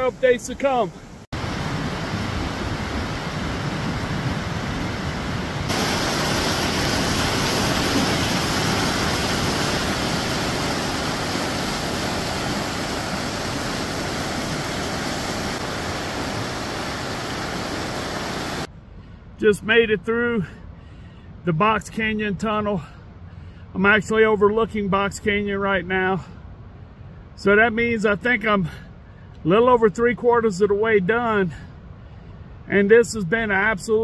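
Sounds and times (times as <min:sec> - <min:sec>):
river rushing over rocks: 0:01.4 - 0:18.7.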